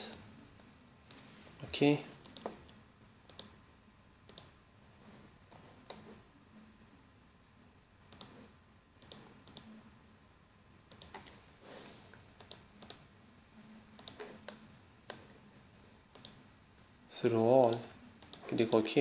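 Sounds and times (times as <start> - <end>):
faint low hum: 0.0 - 19.0
computer mouse clicks: 2.2 - 3.6, 4.3 - 4.6, 5.5 - 6.1, 8.1 - 9.7, 10.9 - 11.4, 12.1 - 13.0, 13.9 - 15.3, 16.1 - 16.4, 17.6 - 18.6.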